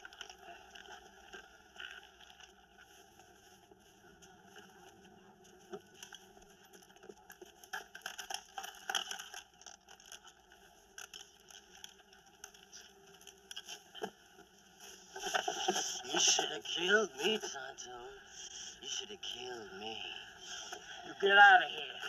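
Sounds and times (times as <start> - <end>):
faint clicks and scrapes: 0.0 - 17.6.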